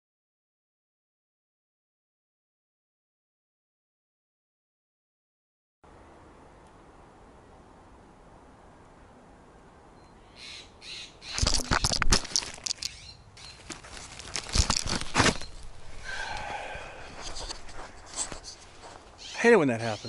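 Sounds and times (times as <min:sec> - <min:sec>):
dry leaves rustling: 0:11.2 - 0:16.4, 0:17.0 - 0:19.4
camera knocked over: 0:11.3 - 0:12.9, 0:13.7 - 0:15.7.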